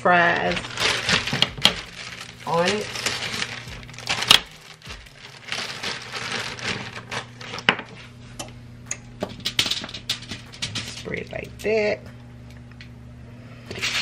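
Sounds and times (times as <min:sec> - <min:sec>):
foil crinkling: 0:00.0 - 0:08.0
steady low hum: 0:00.0 - 0:14.0.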